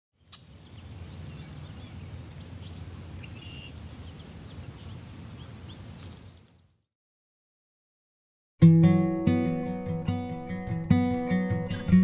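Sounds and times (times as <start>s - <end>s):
small birds chirping: 0.2s - 6.9s.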